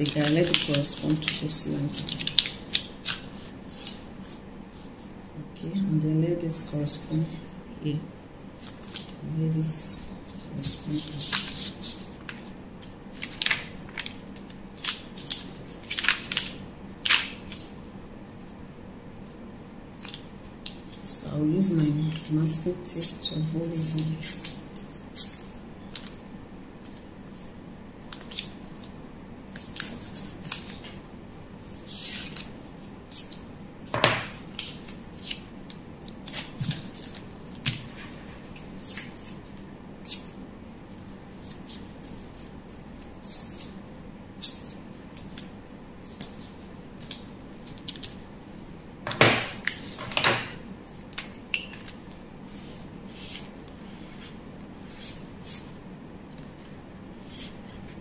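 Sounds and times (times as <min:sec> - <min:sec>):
paper rustling: 0:00.0 - 0:05.0, 0:10.2 - 0:17.8, 0:20.0 - 0:31.0, 0:36.1 - 0:40.3.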